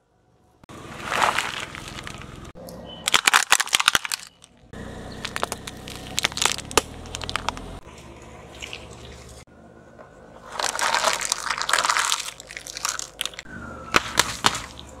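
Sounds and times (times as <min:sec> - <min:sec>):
paper crumpling and crackling: 0:00.9 - 0:02.5, 0:03.1 - 0:04.5, 0:10.4 - 0:14.9
crunching and cracking objects: 0:00.9 - 0:07.9, 0:10.4 - 0:15.0.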